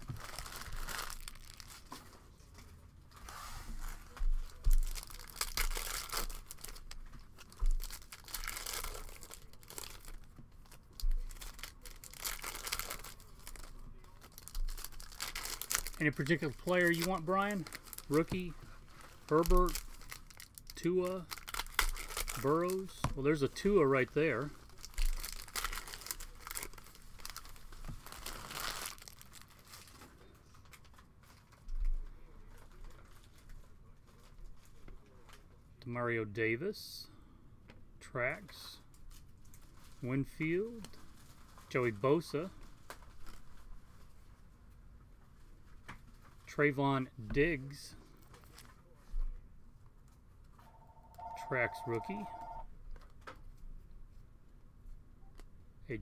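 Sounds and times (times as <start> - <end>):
foil wrapper tearing and crinkling: 0.0 - 1.9, 4.6 - 22.9, 24.6 - 31.6.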